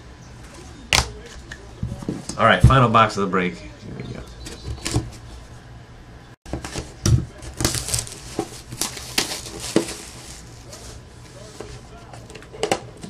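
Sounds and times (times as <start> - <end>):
wrapping crinkling and tearing: 7.3 - 12.4.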